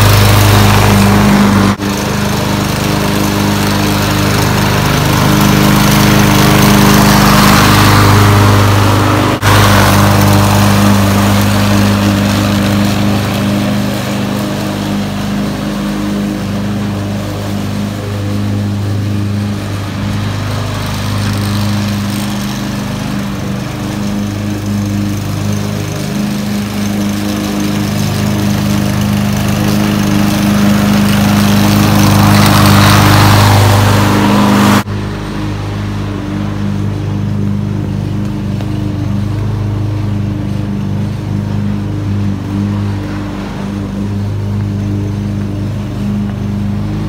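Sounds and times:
small engine running steadily: 0:00.0 - 0:47.0.

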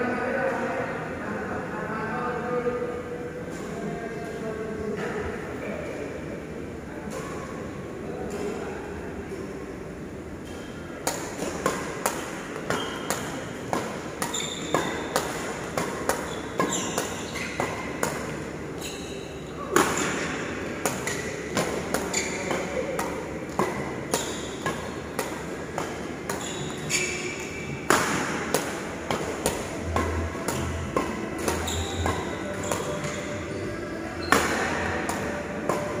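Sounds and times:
court shoes squeaking: 0:10.4 - 0:36.0
racket hitting shuttlecock: 0:11.0 - 0:18.5, 0:19.7 - 0:33.4, 0:34.2 - 0:36.0.

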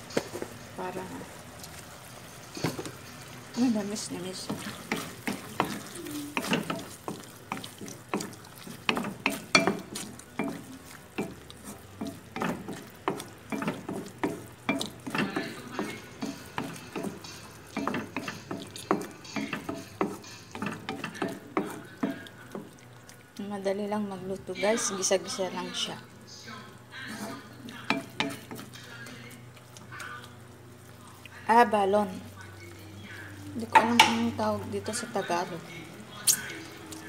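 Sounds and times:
sauce sizzling: 0:00.0 - 0:37.0
spatula scraping and knocking wok: 0:02.5 - 0:22.7.

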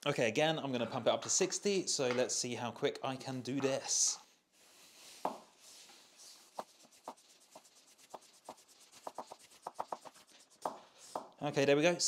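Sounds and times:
floor pump strokes: 0:04.6 - 0:11.3.

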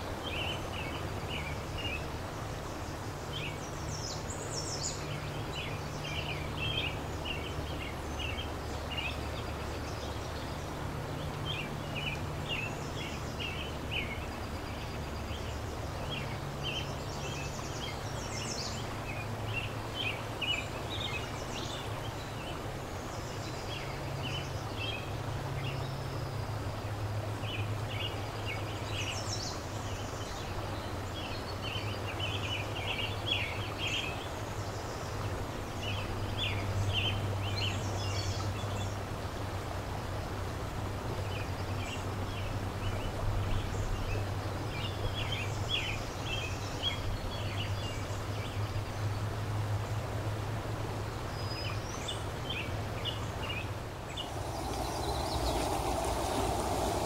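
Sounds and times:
river water rushing: 0:00.0 - 0:57.0
low steady hum: 0:49.8 - 0:57.0
small birds chirping: 0:51.3 - 0:57.0.

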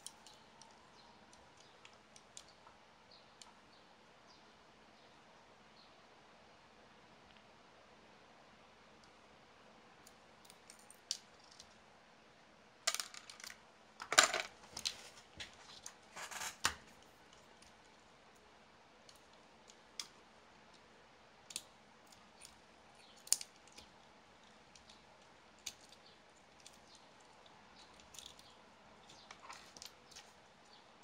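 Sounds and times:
plastic parts clicking and rustling: 0:27.8 - 0:30.3.

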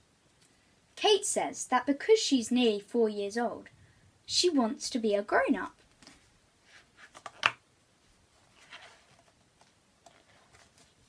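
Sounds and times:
paper pages rustling: 0:05.8 - 0:07.6, 0:08.4 - 0:11.0.

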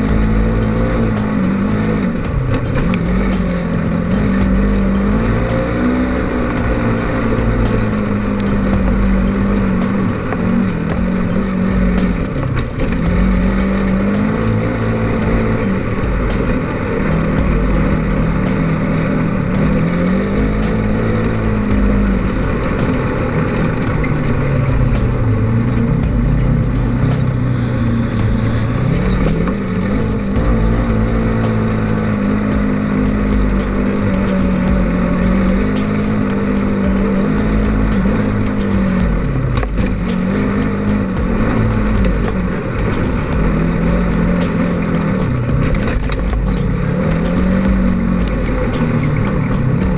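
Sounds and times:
vehicle engine revving: 0:00.0 - 0:49.9.

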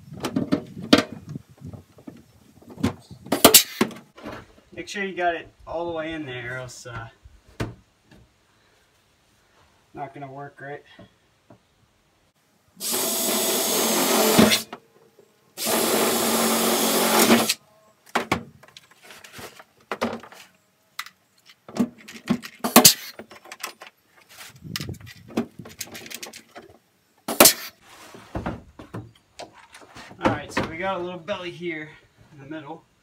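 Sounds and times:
pneumatic rivet gun bursts: 0:03.4 - 0:03.9, 0:12.8 - 0:14.7, 0:15.6 - 0:17.6, 0:22.6 - 0:23.2, 0:27.2 - 0:27.8
tools clicking and knocking: 0:21.0 - 0:24.0.

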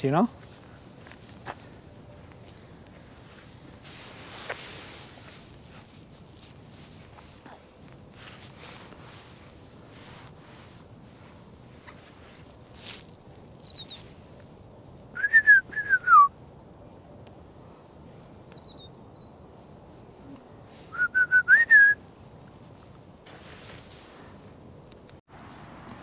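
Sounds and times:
clear whistled notes: 0:15.2 - 0:16.3.

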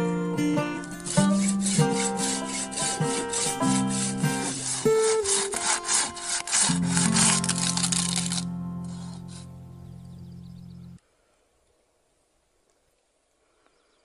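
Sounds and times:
pruning saw cutting branch: 0:00.7 - 0:09.7.

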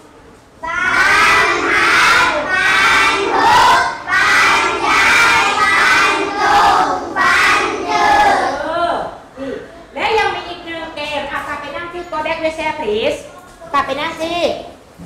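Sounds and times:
children chanting in unison: 0:00.6 - 0:08.6.

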